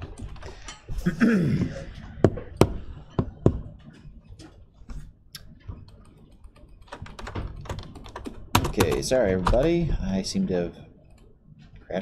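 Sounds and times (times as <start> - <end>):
keyboard and mouse clicks: 5.3 - 9.7.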